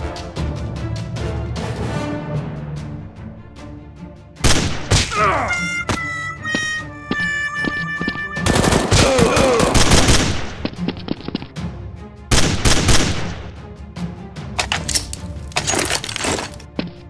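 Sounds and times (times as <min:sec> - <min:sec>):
background music: 0:00.0 - 0:17.0
automatic gunfire bursts: 0:08.4 - 0:10.4.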